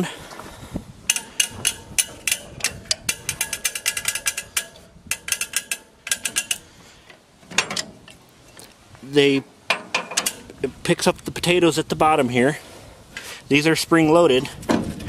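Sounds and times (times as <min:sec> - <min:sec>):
planter mechanism clicking and ratcheting: 0:01.1 - 0:08.2, 0:09.7 - 0:10.6
loud metal clunk: 0:07.4 - 0:08.2.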